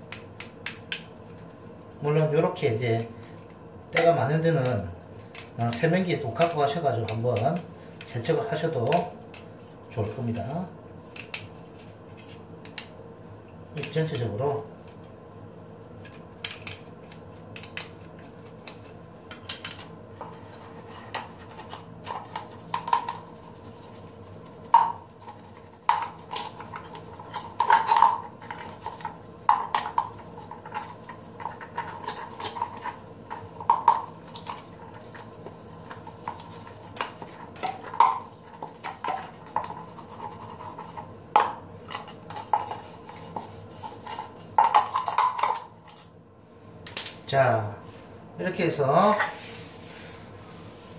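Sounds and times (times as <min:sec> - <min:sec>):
faint steady hum: 0:00.0 - 0:50.9
toothbrush scrubbing plastic: 0:00.1 - 0:02.6, 0:04.0 - 0:10.3, 0:11.0 - 0:12.4, 0:13.7 - 0:19.0, 0:19.6 - 0:41.1, 0:41.9 - 0:45.3.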